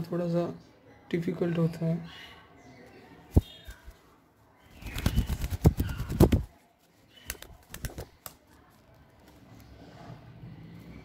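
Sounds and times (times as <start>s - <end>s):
bird wings flapping: 4.7s - 6.5s, 7.2s - 8.4s.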